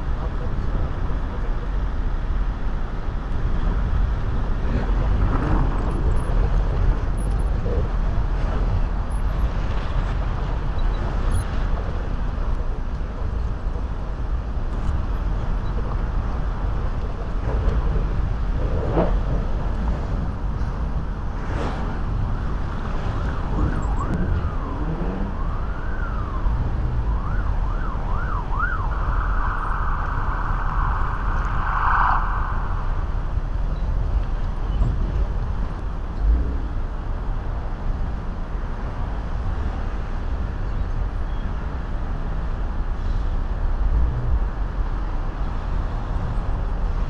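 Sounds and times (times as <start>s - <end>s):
street traffic rumble: 0.0s - 47.0s
emergency vehicle siren: 22.8s - 33.4s.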